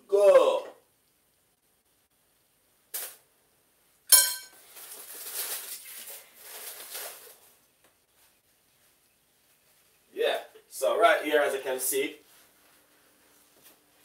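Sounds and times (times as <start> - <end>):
utensil clinking on dishware: 4.1 - 4.6
scraping and rustling: 4.6 - 10.0.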